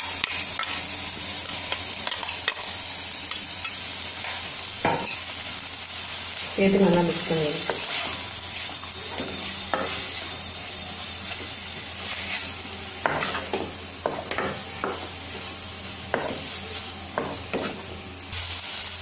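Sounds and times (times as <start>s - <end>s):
food sizzling in a pan: 0.0s - 19.0s
spatula scraping metal pan: 12.0s - 13.6s.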